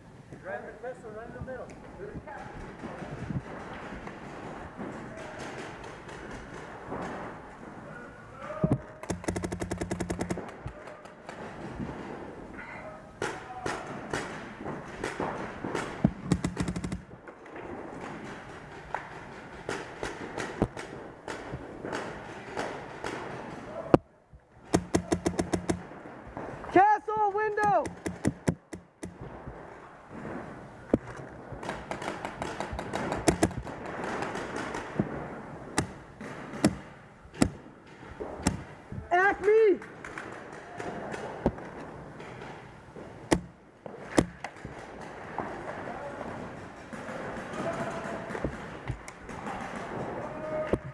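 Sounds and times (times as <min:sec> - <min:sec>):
paintball markers firing: 0:08.8 - 0:12.0, 0:13.2 - 0:17.2, 0:17.9 - 0:23.7, 0:24.6 - 0:25.9, 0:27.4 - 0:29.4, 0:30.9 - 0:38.8, 0:39.4 - 0:45.9, 0:46.6 - 0:50.9.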